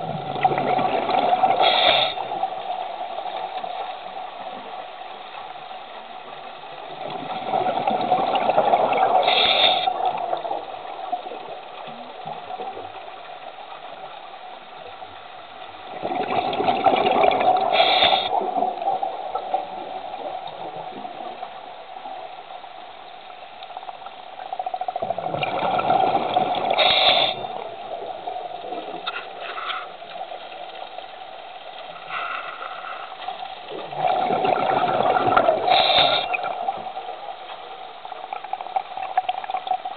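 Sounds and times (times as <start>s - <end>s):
exhaled bubbles underwater: 0.0s - 4.8s, 6.9s - 13.3s, 15.9s - 22.4s, 24.4s - 31.1s, 33.5s - 39.9s
soft water hiss: 0.0s - 39.9s.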